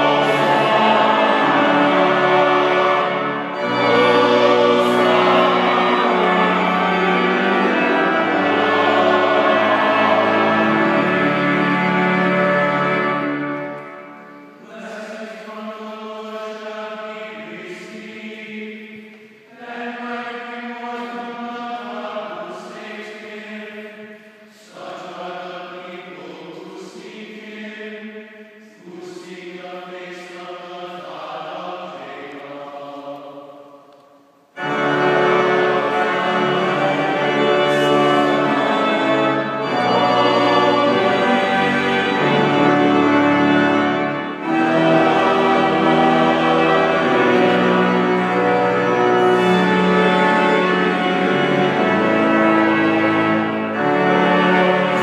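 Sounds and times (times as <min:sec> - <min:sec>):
organ: 0:00.0 - 0:24.0, 0:34.6 - 0:55.0
voices singing a hymn: 0:00.0 - 0:55.0
man chanting: 0:14.6 - 0:18.8.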